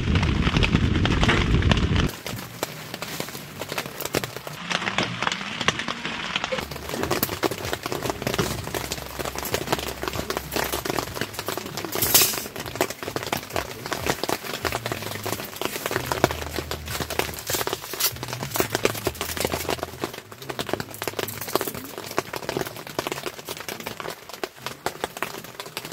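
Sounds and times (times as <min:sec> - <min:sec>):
rain pattering on tent fabric: 0:00.0 - 0:25.9.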